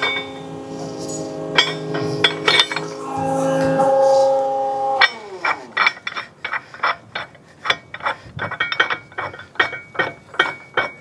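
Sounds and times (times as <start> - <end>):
metal chain links clinking: 1.0 - 3.0, 5.7 - 11.0.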